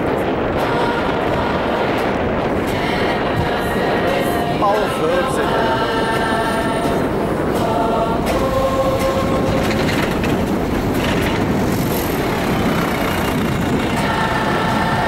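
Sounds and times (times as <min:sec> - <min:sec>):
faint choir singing: 0:00.0 - 0:15.0
tram wheels rumbling on rails: 0:00.0 - 0:15.0
wheel squeal: 0:09.1 - 0:14.2.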